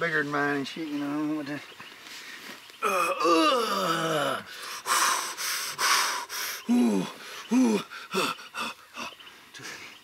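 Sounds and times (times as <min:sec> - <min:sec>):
man grunting: 0:02.8 - 0:04.5, 0:06.7 - 0:08.7
man puffing breaths: 0:02.8 - 0:09.1.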